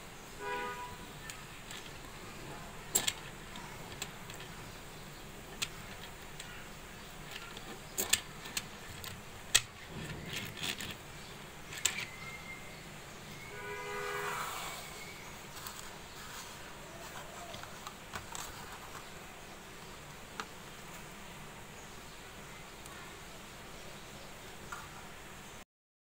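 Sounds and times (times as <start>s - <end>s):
toy car rolling rumble: 1.2s - 12.6s
toy car clicking on table: 2.9s - 4.6s, 5.5s - 6.6s, 7.2s - 11.0s, 11.7s - 12.2s.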